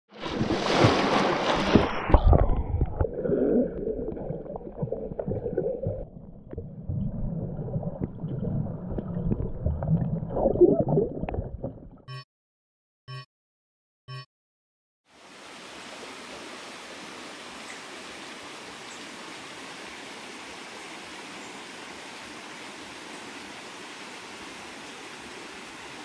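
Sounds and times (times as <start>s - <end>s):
underwater splashing and bubbles: 0.1s - 12.1s
muffled underwater rumble: 2.0s - 12.0s.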